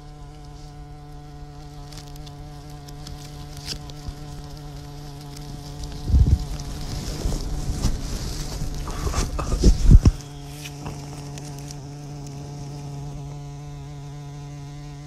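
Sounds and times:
bumblebee buzzing: 0.0s - 15.0s
wind buffeting microphone: 5.9s - 11.1s.

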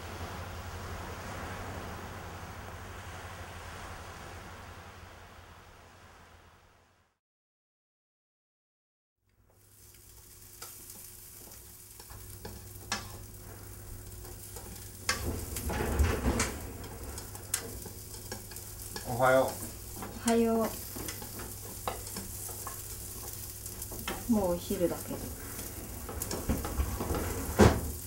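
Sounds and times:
food sizzling in a frying pan: 9.4s - 28.0s.

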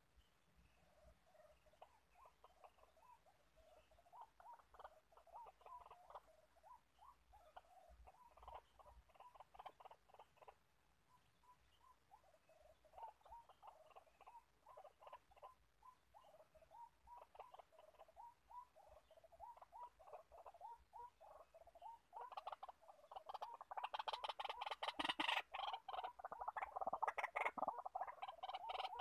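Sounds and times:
waterhen calling: 11.4s - 29.0s.

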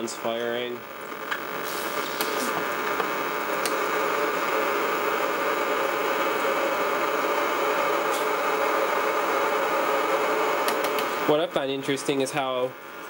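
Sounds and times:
hiss and crackle of neon bulbs: 0.1s - 12.2s
sharp clicks: 3.0s - 3.8s, 10.6s - 11.1s.

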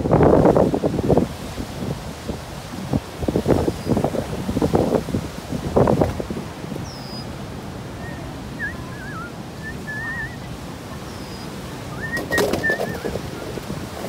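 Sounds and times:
songbird singing warbled phrases: 8.0s - 13.1s
knocks and rustling: 12.2s - 14.0s.

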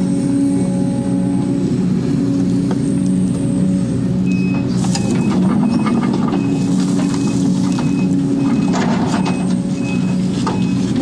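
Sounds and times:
excavator diesel engine and hydraulics: 0.0s - 11.0s.

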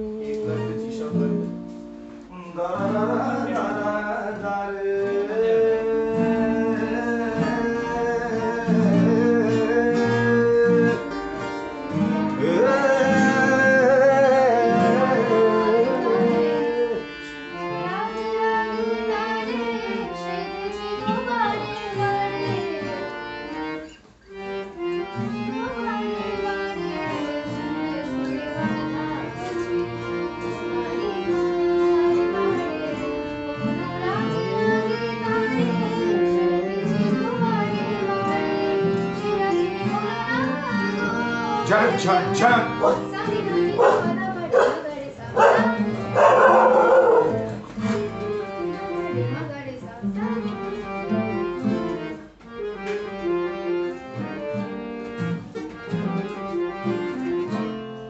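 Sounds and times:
person singing: 0.0s - 1.6s, 2.3s - 23.7s, 25.0s - 48.2s
acoustic guitars playing: 0.0s - 58.0s.

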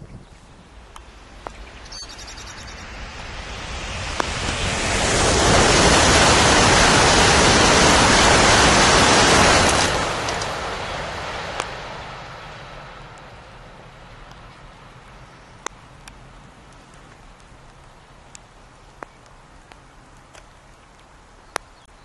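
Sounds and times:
train passing at speed: 0.6s - 15.4s.

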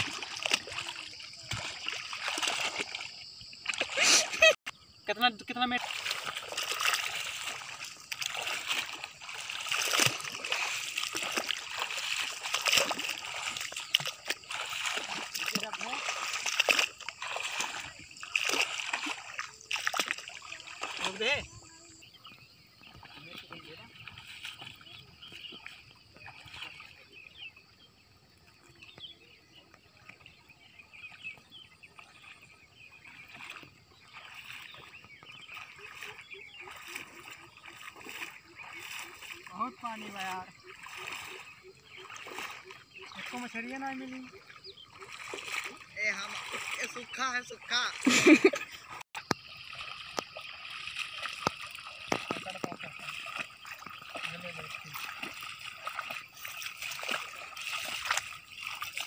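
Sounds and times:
feet wading through water: 0.0s - 59.0s
bird chirps: 20.3s - 59.0s.

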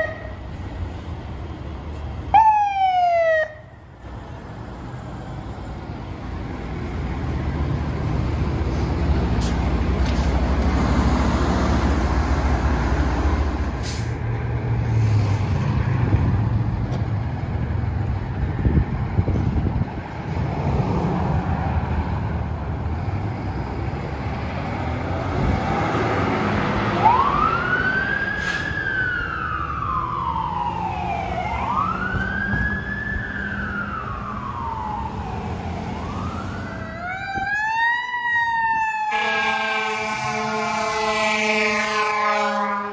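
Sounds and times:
diesel engines rumbling: 0.0s - 42.9s
wail siren: 2.3s - 3.8s, 26.8s - 42.9s.

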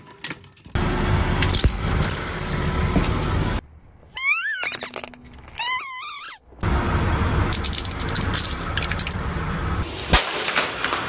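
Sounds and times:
rubber squeaky toy squealing: 4.1s - 6.5s.

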